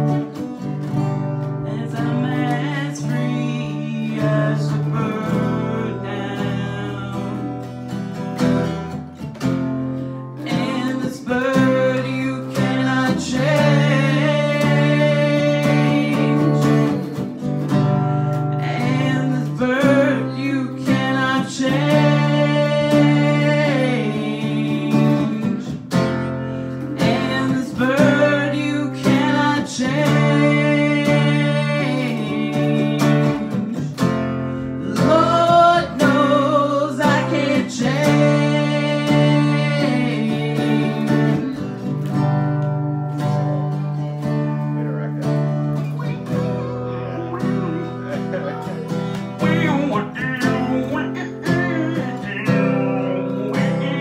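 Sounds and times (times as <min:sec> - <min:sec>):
acoustic guitar strumming: 0:00.0 - 0:54.0
woman singing: 0:01.5 - 0:07.7, 0:10.4 - 0:42.0, 0:48.9 - 0:54.0.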